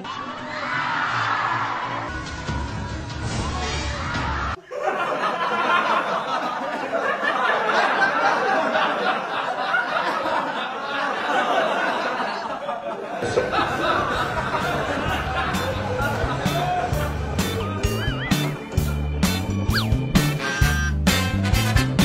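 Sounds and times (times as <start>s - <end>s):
crowd laughing: 4.5s - 22.0s
background music with bass: 13.5s - 22.0s.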